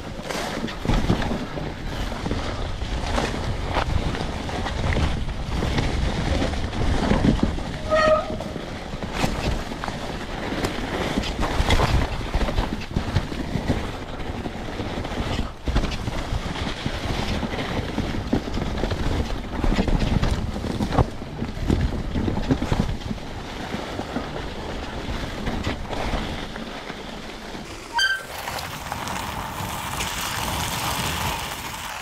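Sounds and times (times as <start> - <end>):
bike knocking and rattling: 0.0 - 32.0
tyres rolling over snow and leaves: 0.0 - 32.0.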